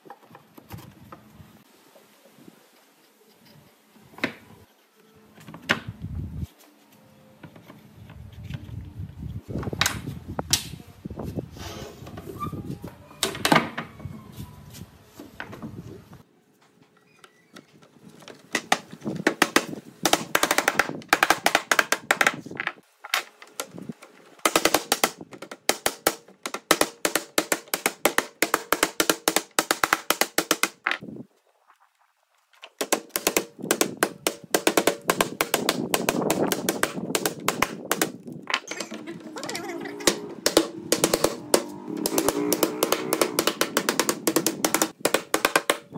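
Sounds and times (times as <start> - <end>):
hammer tapping wooden slats: 18.6 - 22.4, 24.4 - 31.0, 32.8 - 45.9.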